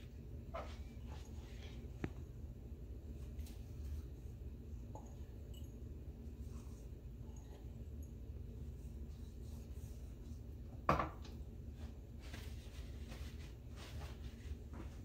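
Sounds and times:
low room hum: 0:00.0 - 0:15.0
paper towel crinkling: 0:11.7 - 0:15.0
rustling and rubbing: 0:11.7 - 0:15.0.

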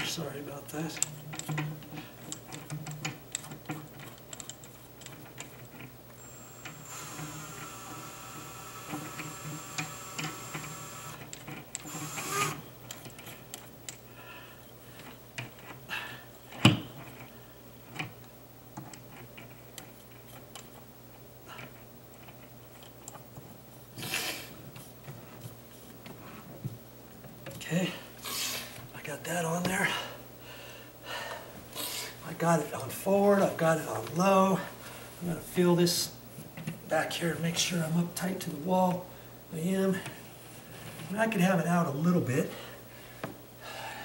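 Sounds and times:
cordless drill motor running: 0:06.2 - 0:12.7.

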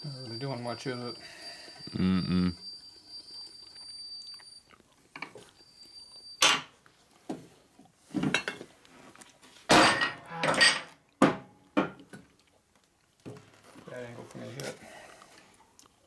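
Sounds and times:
metal tools clanking on steel bench: 0:09.7 - 0:10.9.

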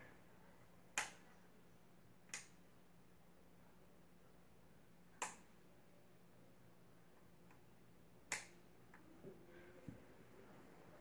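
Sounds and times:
ceiling fan hum: 0:00.0 - 0:11.0
sharp clicks: 0:08.3 - 0:08.6.

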